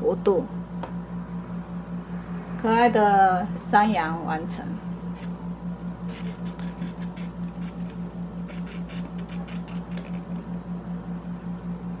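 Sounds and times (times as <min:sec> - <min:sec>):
balloons rubbing and squeaking: 0:06.0 - 0:10.4.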